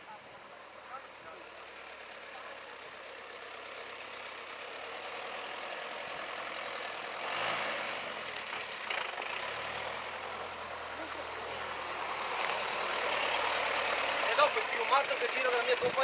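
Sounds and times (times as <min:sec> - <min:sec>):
off-roader engine on dirt: 0:00.0 - 0:16.0.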